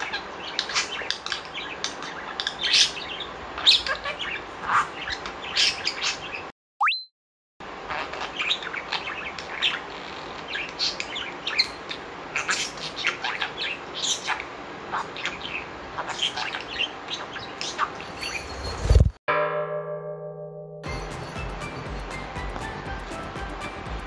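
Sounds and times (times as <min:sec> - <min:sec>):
budgerigar chirping: 0:07.9 - 0:18.1.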